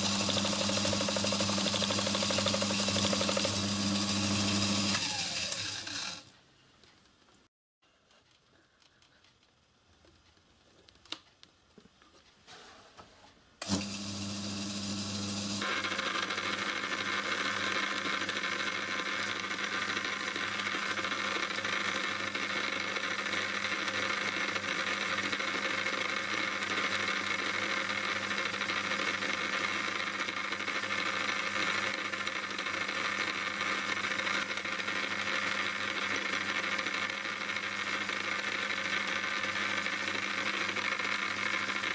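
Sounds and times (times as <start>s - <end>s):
lathe motor humming and whirring: 0.0s - 6.2s, 13.6s - 18.4s
faint clicks and knocks: 6.3s - 13.4s.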